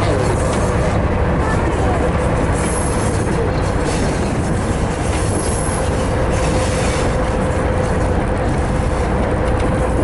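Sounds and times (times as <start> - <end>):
train wheels rumbling on rail: 0.0 - 10.0.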